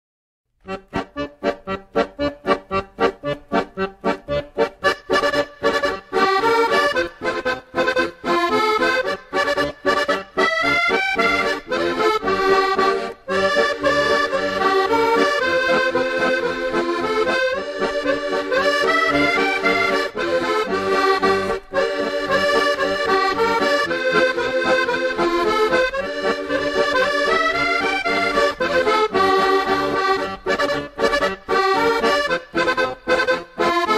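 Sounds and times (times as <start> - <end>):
accordion tune: 0.6 - 33.9.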